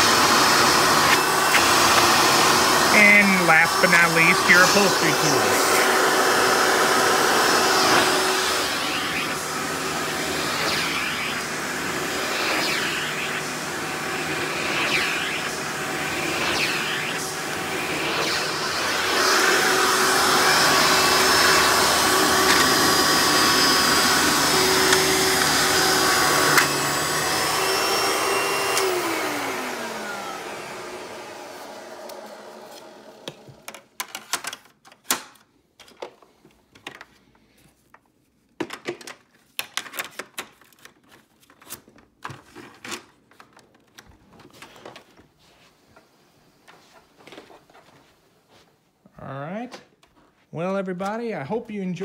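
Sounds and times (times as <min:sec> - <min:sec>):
vacuum motor winding down: 0:00.0 - 0:33.5
vacuum cleaner running: 0:00.0 - 0:33.7.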